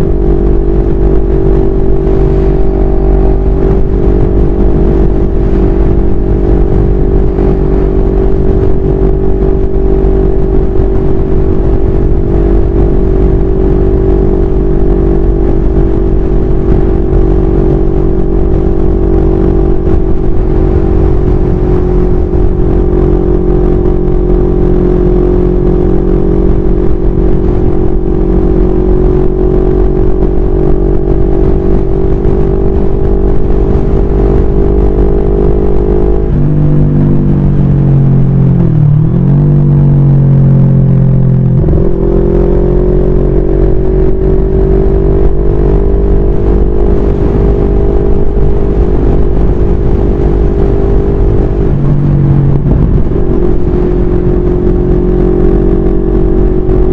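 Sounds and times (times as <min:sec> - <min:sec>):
motorcycle engine cruising: 0:00.0 - 0:56.9
wind buffeting microphone: 0:48.5 - 0:55.0.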